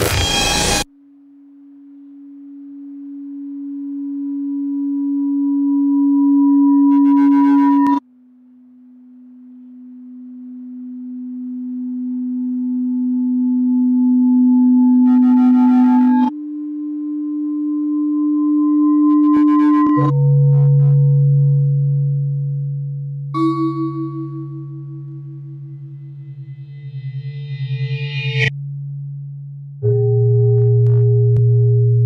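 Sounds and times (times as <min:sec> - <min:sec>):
low electronic hum tone: 0:00.0 - 0:32.0
faint higher electronic tone: 0:00.1 - 0:28.6.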